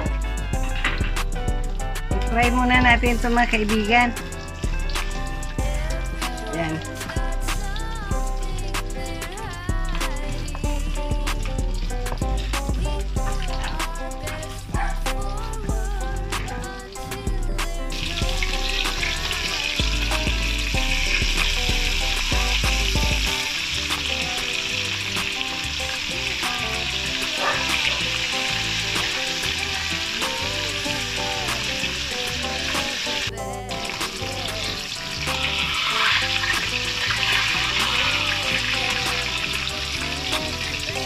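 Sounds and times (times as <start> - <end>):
background music with bass beat: 0.0 - 41.0
fish sizzling in hot oil: 3.2 - 41.0.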